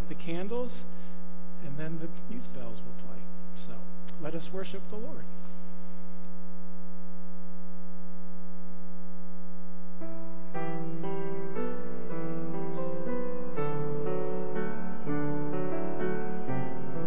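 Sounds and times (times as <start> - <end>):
electrical hum: 0.0 - 17.0
grand piano playing: 10.0 - 17.0.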